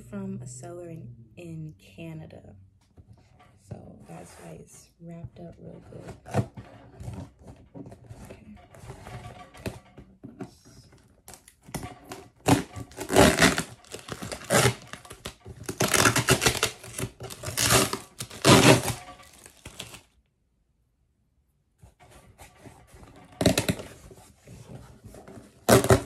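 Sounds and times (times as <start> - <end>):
packing material tearing and crinkling: 12.1 - 20.2, 25.6 - 26.0.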